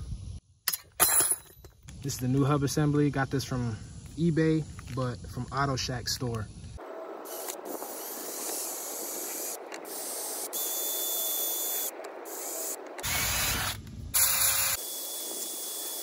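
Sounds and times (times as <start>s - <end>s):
cordless impact wrench bursts: 7.3s - 16.0s.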